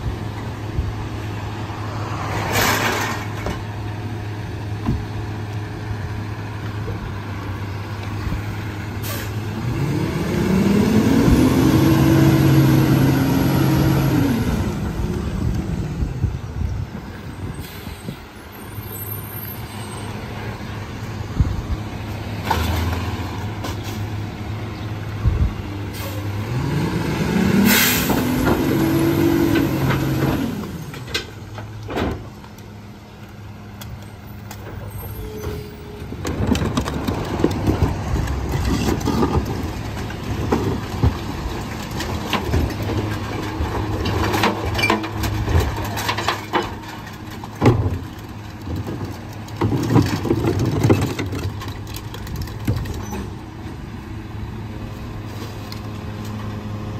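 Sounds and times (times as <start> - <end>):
garbage truck diesel engine revving: 5.3 - 16.3, 20.2 - 31.1.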